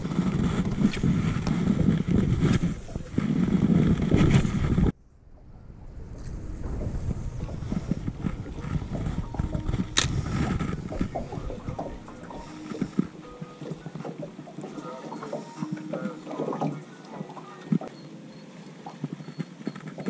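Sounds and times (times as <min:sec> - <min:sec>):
wind buffeting microphone: 0:00.0 - 0:14.6.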